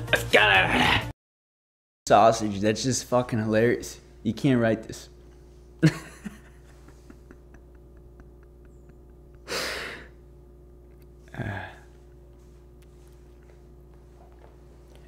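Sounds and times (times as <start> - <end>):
man laughing: 5.8 - 10.2.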